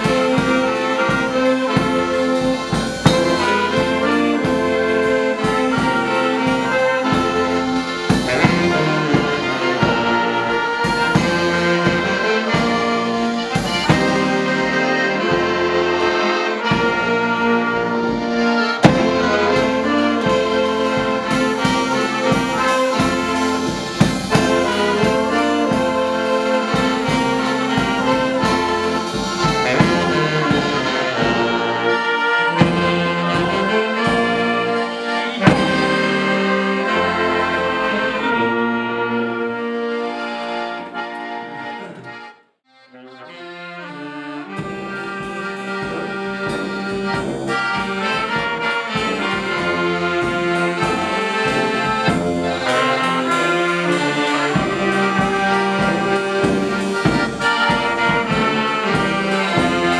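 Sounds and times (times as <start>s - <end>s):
accordion: 0.0s - 59.9s
brass band playing a carol: 0.0s - 59.9s.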